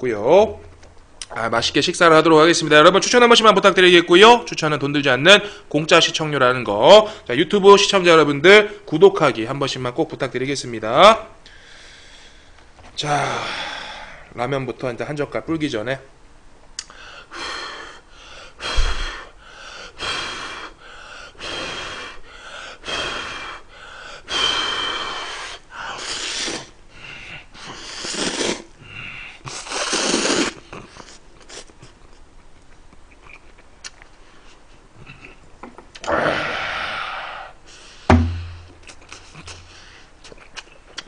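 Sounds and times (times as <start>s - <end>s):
man slurping noodles: 25.9s - 26.8s, 27.6s - 28.7s, 29.4s - 31.8s
chewing: 30.7s - 34.1s, 40.2s - 41.0s
thump: 38.1s - 38.7s.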